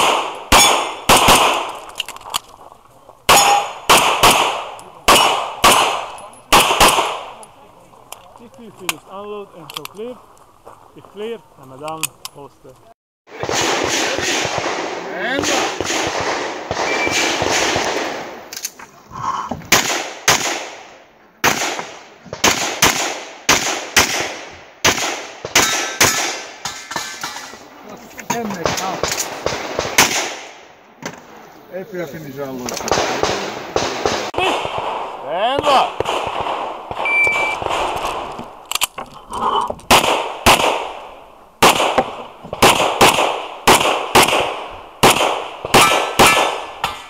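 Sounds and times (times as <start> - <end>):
pistol shots: 0.0 - 1.9, 3.3 - 7.4, 13.3 - 18.4, 19.7 - 27.1, 28.6 - 30.6, 32.8 - 38.3, 39.9 - 47.0
shot timer beep: 37.0 - 37.6.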